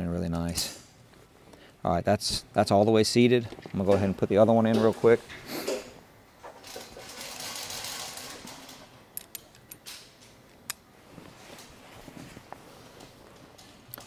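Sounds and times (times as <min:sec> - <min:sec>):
handling rustling: 0:11.0 - 0:14.0.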